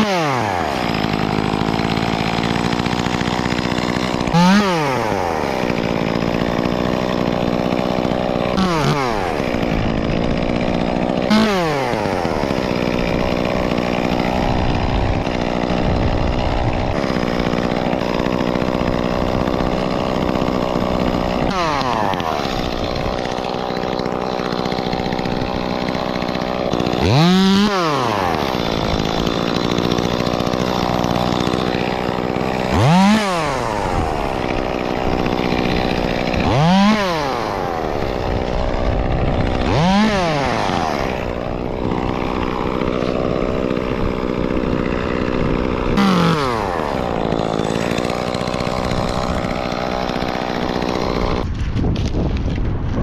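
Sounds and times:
chainsaw idling and revving: 0:00.0 - 0:53.0.

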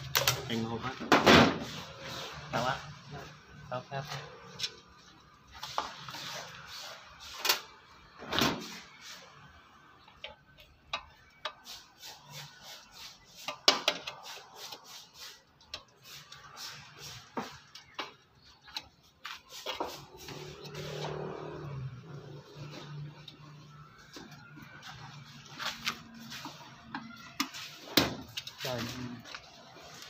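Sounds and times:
hand tools clicking and scraping: 0:10.1 - 0:30.0.

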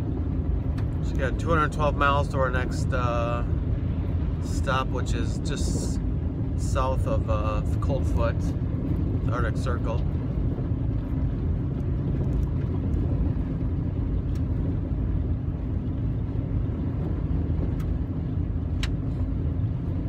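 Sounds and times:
engine and tyre rumble on gravel: 0:00.0 - 0:20.0.

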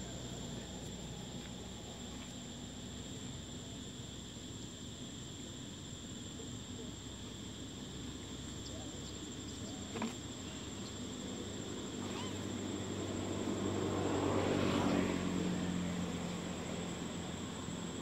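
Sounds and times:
high-pitched insect drone: 0:02.4 - 0:18.0
motor vehicle passing: 0:12.0 - 0:17.3.

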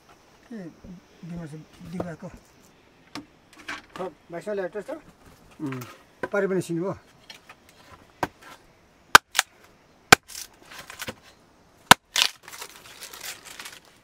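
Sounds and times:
knife chopping wood: 0:09.2 - 0:09.5, 0:11.9 - 0:12.3
wood cracking and splintering: 0:11.9 - 0:14.0.

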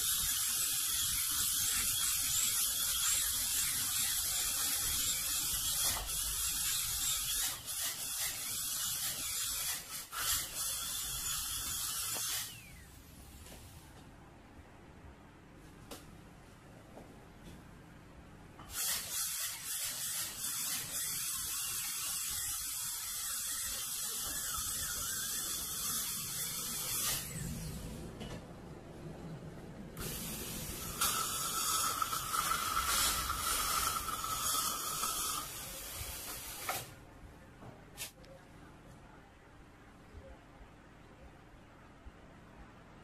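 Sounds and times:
dental drill spray hiss: 0:00.0 - 0:12.8, 0:18.7 - 0:27.4, 0:30.0 - 0:36.9
dental drill whine: 0:00.0 - 0:13.0, 0:18.7 - 0:27.8, 0:30.0 - 0:36.7.

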